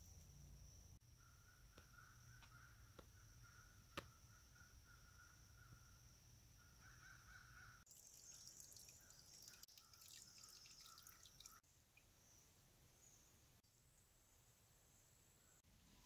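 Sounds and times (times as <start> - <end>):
faint woodland ambience: 0.0 - 16.0.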